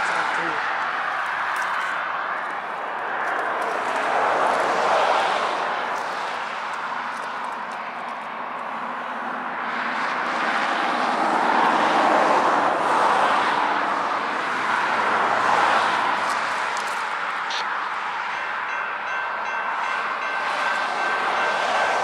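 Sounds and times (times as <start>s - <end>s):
distant diesel locomotive rumble: 17.0s - 22.0s.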